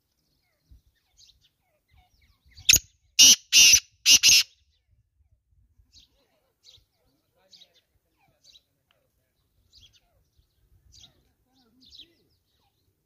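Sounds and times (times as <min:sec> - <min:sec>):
small birds chirping: 0:00.0 - 0:13.0
francolin harsh grating call: 0:03.2 - 0:04.5.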